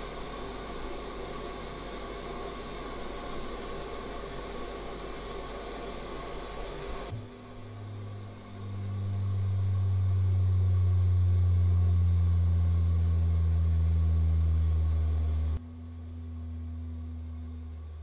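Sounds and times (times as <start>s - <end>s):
faint low hum: 0.0s - 18.0s
deep humming drone: 7.1s - 18.0s.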